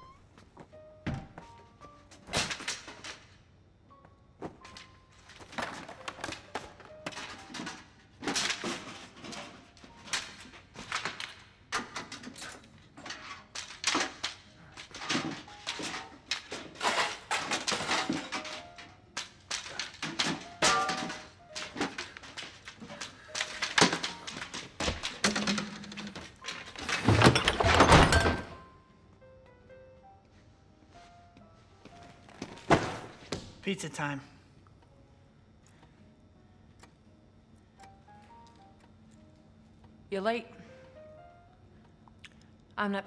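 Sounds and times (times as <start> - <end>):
soft music: 0.0 - 43.0
objects knocking and clattering: 4.4 - 28.6.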